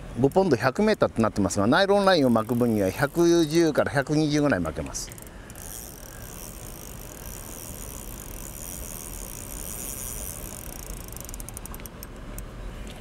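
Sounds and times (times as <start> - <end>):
fishing reel drag ratchet whirring: 2.1 - 3.8, 4.9 - 12.4.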